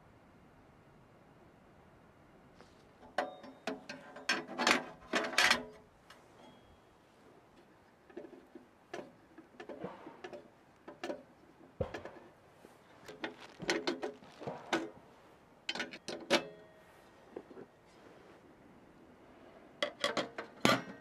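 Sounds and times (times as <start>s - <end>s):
metal stove parts clanking: 3.0s - 6.6s, 15.7s - 16.8s, 19.8s - 21.0s.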